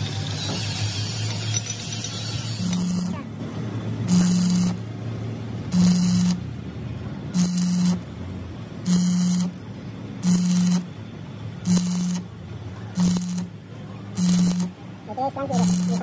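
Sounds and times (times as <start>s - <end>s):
welding arc buzzing and crackling: 0.0s - 3.3s, 4.0s - 5.0s, 5.7s - 6.5s, 7.3s - 8.2s, 8.8s - 9.6s, 10.2s - 10.9s, 11.5s - 16.0s.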